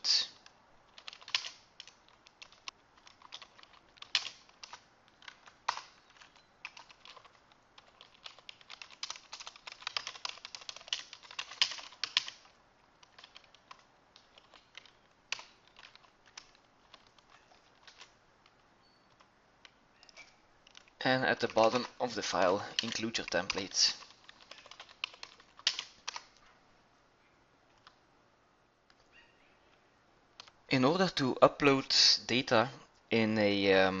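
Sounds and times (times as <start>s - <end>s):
computer keyboard typing: 0.4s - 26.4s.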